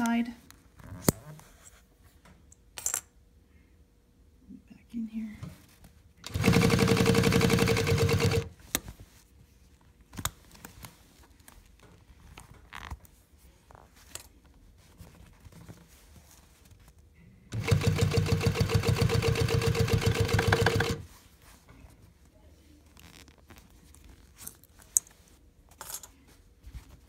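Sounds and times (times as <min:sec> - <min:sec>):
sewing machine stitching: 0:06.2 - 0:08.5, 0:17.5 - 0:21.1
fabric handling: 0:20.2 - 0:25.4.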